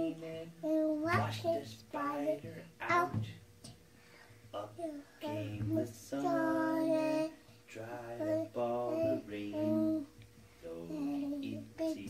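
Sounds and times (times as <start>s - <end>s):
child singing into a microphone: 0.6s - 3.2s, 5.2s - 7.4s, 8.2s - 10.1s.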